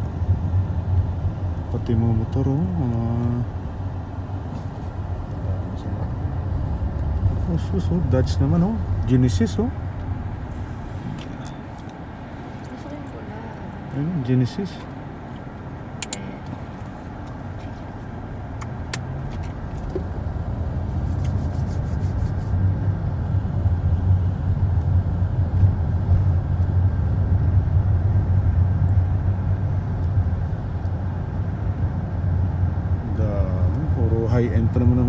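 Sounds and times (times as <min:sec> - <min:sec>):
car engine and road noise: 0:00.0 - 0:35.0
sharp click: 0:16.0 - 0:16.3.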